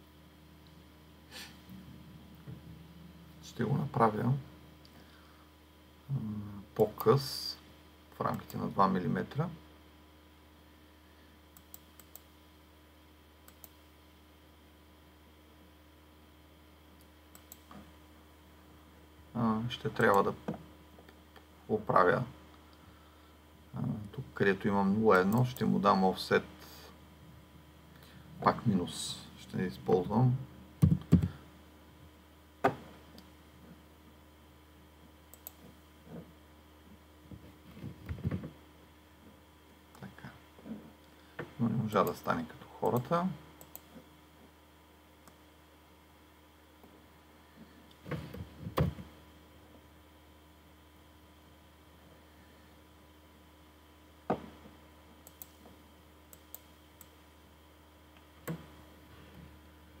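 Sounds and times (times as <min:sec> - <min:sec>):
steady low hum: 0:00.0 - 1:00.0
computer mouse clicks: 0:11.5 - 0:12.3, 0:13.4 - 0:13.8, 0:17.0 - 0:17.8, 0:20.0 - 0:20.3, 0:35.3 - 0:36.2, 0:42.8 - 0:44.0, 0:55.2 - 0:55.7, 0:56.3 - 0:57.2.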